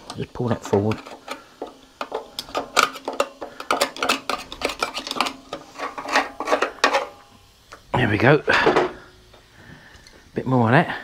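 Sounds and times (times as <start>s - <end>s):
screwdriver scraping on metal: 0.0s - 7.2s.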